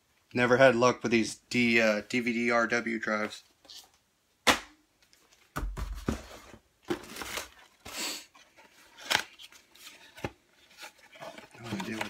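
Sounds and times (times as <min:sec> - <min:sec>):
packaging rustling and crinkling: 0:05.2 - 0:12.0.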